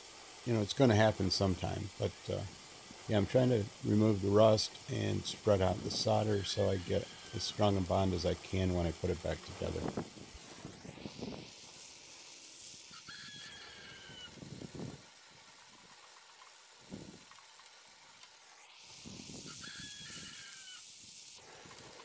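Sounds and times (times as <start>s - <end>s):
gas torch hissing: 0.0s - 22.0s
wire brush scrubbing metal: 3.1s - 10.7s.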